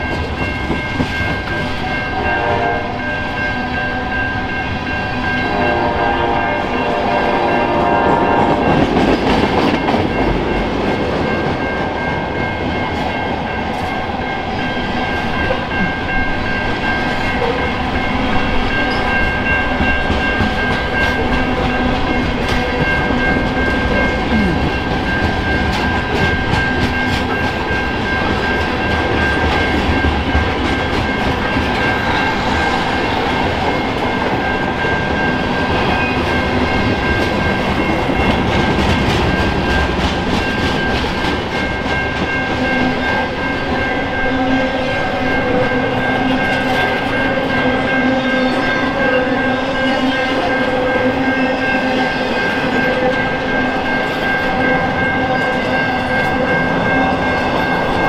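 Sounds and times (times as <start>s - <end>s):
train wheels clattering on rails: 0.0s - 2.1s, 7.6s - 44.2s
crossing warning bell ringing: 0.0s - 58.0s.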